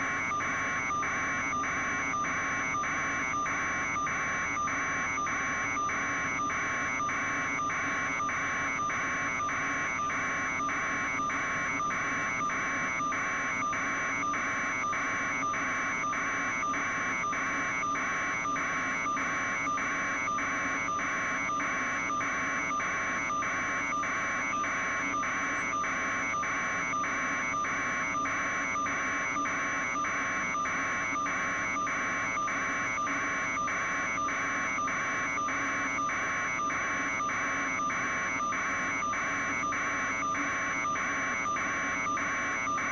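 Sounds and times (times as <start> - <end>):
helicopter cabin drone with whine: 0.0 - 42.9.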